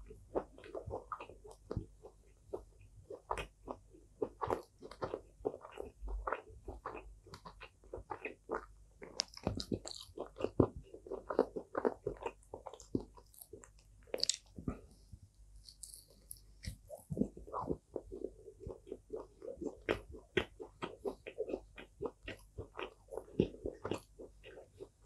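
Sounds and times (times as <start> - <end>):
crunchy chewing: 0.3 - 15.0, 15.6 - 25.0
wet mouth sounds: 2.6 - 14.9, 15.6 - 25.0.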